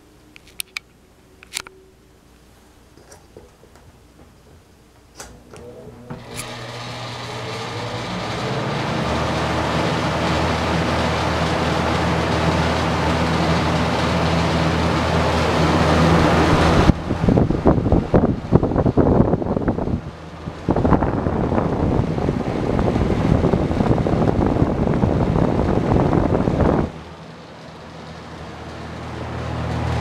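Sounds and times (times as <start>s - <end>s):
fan motor humming: 0.0s - 30.0s
wind buffeting microphone: 16.4s - 27.0s.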